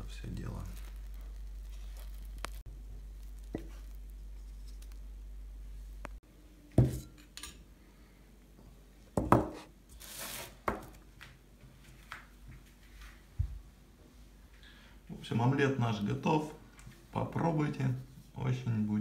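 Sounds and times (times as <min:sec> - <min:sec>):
steady low hum: 0:00.0 - 0:09.1.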